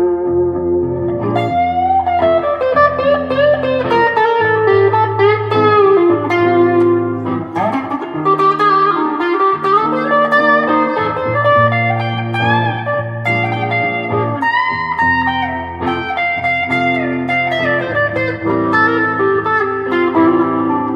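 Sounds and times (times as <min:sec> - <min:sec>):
electric guitar lead with bends: 0:00.0 - 0:20.9
looped held guitar notes: 0:00.0 - 0:20.9.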